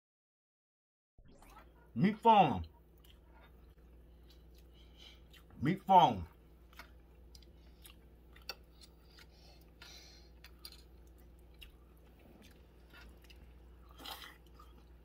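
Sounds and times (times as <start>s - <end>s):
steady low hum: 1.5s - 15.0s
person chewing: 2.7s - 5.6s, 6.3s - 15.0s.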